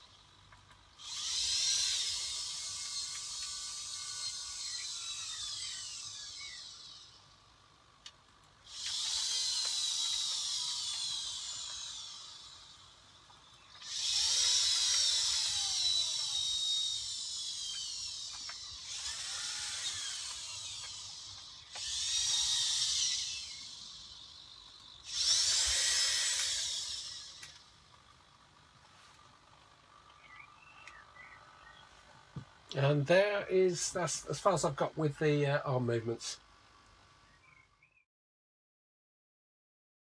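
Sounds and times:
servo motors whining: 0:00.0 - 0:34.5
small click: 0:30.8 - 0:31.0.

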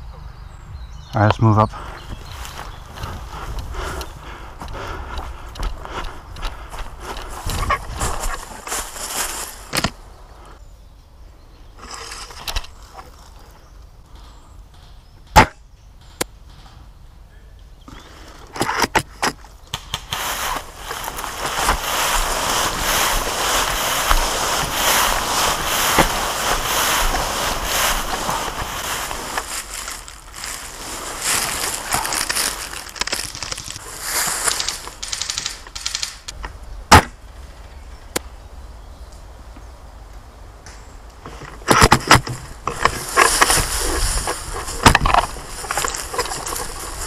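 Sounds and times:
rustling vegetation: 0:00.0 - 0:47.0
sharp crack: 0:15.3 - 0:16.8, 0:18.7 - 0:37.2
water splashing underfoot: 0:20.1 - 0:36.0
sharp clicks and snaps: 0:34.4 - 0:36.4.

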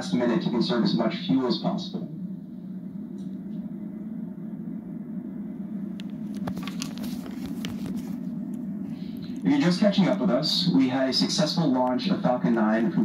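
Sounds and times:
low rumble through tv speaker: 0:00.0 - 0:13.0.

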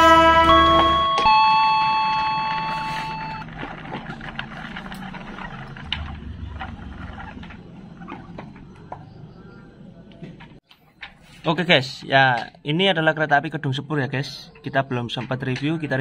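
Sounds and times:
train horn chord: 0:00.0 - 0:02.9.

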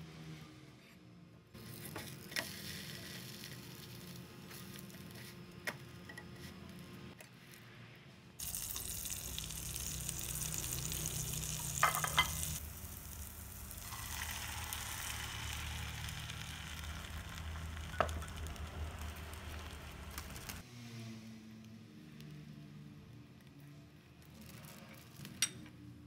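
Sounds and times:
food sizzling in a pan: 0:01.6 - 0:04.8, 0:08.4 - 0:20.6.

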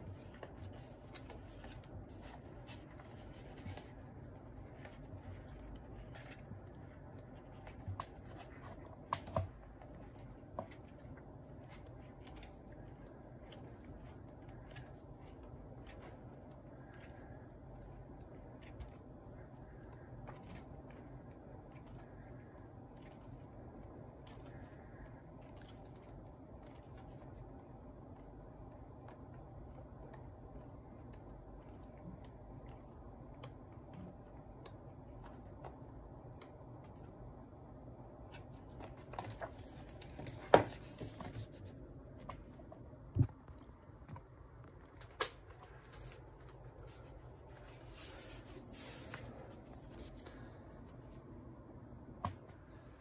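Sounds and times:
paper pages rustling: 0:00.0 - 0:04.2
low room hum: 0:00.0 - 0:53.0.

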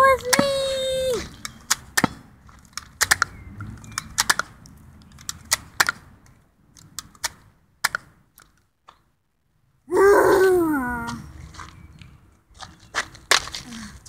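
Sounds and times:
sharp plastic clicks: 0:00.0 - 0:09.1.

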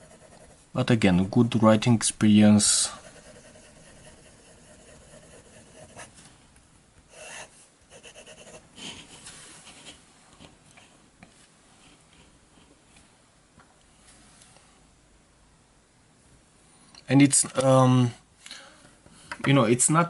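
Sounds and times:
fountain pen scratching paper: 0:00.0 - 0:00.6, 0:03.0 - 0:06.1.

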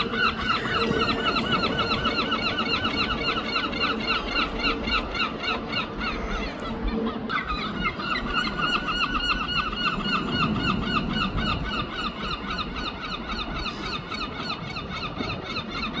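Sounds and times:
gulls calling: 0:00.0 - 0:16.0.

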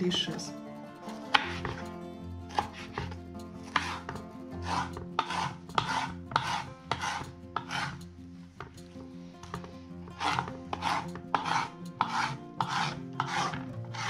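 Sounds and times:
knife slicing on cutting board: 0:02.5 - 0:03.1, 0:03.7 - 0:08.0, 0:10.2 - 0:14.0.

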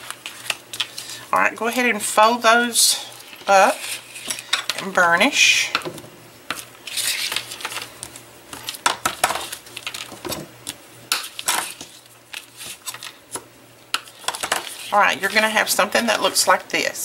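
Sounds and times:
paper handling: 0:06.5 - 0:13.4.

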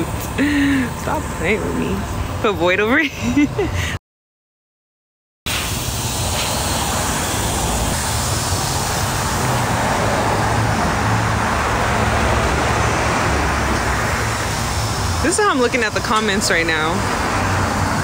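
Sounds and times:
loud even hiss: 0:05.5 - 0:11.4.

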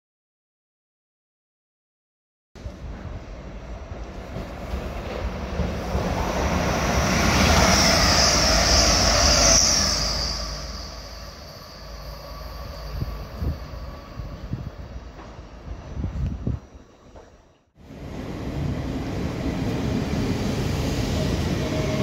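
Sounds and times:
diesel train passing: 0:02.6 - 0:22.0.

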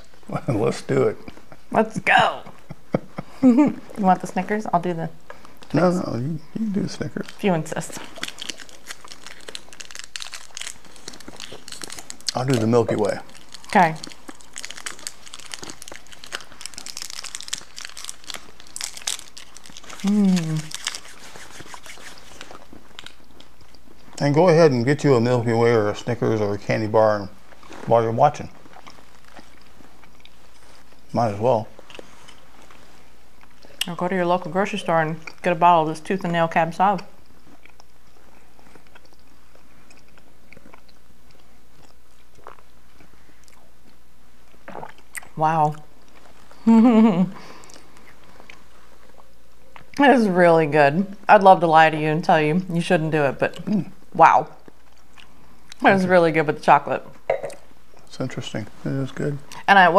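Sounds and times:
people chewing: 0:05.2 - 0:24.5, 0:26.0 - 0:34.0, 0:36.3 - 0:50.0, 0:53.4 - 0:56.0
wrappers crinkling: 0:07.0 - 0:23.6
wet mouth clicks: 0:19.9 - 0:22.6, 0:57.3 - 0:57.6
sipping wine: 0:57.3 - 0:57.7.

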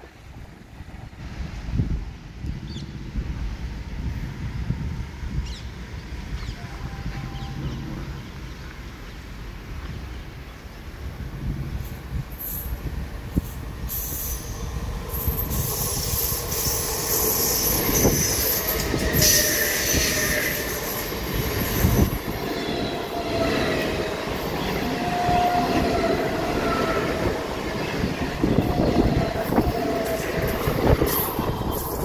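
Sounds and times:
train wheels rumbling on rails: 0:00.0 - 0:32.0
high-pitched wheel squeal: 0:14.0 - 0:21.0.

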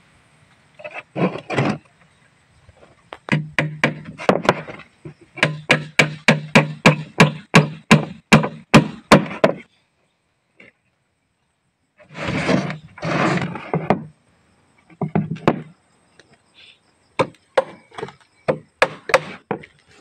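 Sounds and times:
hammer driving nails into wood: 0:03.3 - 0:04.7, 0:05.4 - 0:09.6, 0:18.5 - 0:19.6.

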